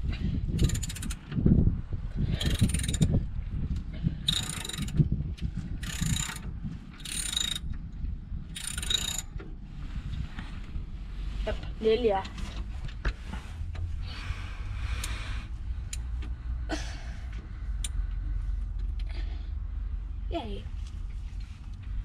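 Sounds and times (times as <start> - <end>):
ratchet wrench clicking: 0.5 - 1.2, 2.3 - 3.2, 4.2 - 5.0, 5.8 - 7.8, 8.5 - 9.4.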